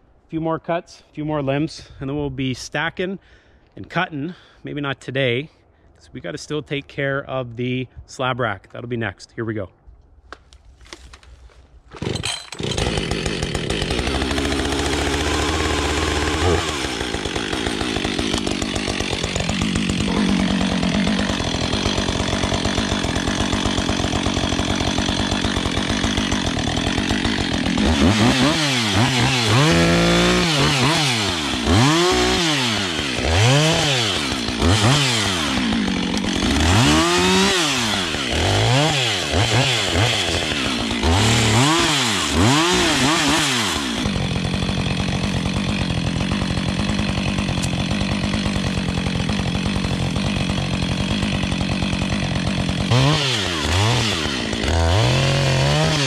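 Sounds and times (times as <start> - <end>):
chainsaw idling and revving: 12.0 - 56.0.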